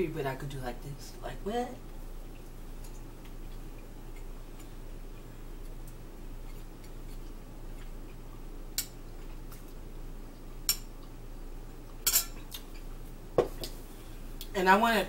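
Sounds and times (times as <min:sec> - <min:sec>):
low steady hum: 0:00.0 - 0:15.0
fork clinking on ceramic plate: 0:12.1 - 0:12.4.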